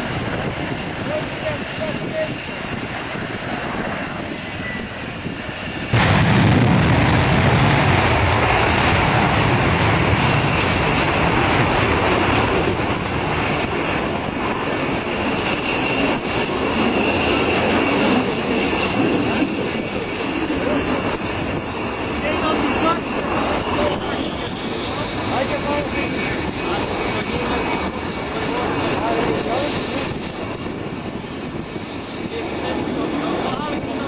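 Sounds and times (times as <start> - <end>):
jet engines roaring with whine: 0.0 - 34.0.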